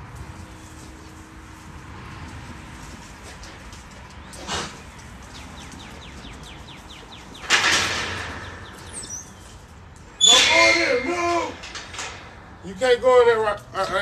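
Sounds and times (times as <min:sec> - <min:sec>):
bird chirping: 0:04.8 - 0:07.5, 0:08.3 - 0:09.6
metal gate knocking and banging: 0:07.3 - 0:09.5, 0:10.2 - 0:12.7.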